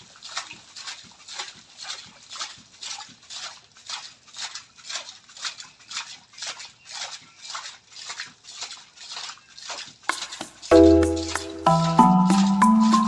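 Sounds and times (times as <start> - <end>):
rhythmic splashing of well pipe: 0.0 - 13.0.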